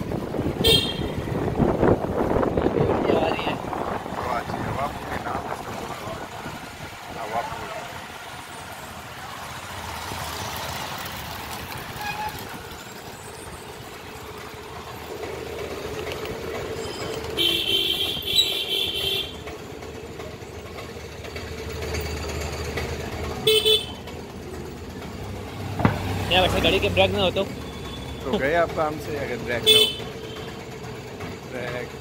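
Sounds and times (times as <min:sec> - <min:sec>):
vehicle engine running: 0:00.0 - 0:32.0
car horn: 0:00.6 - 0:01.3, 0:12.0 - 0:12.5, 0:17.3 - 0:19.4, 0:23.4 - 0:24.0, 0:29.6 - 0:30.6.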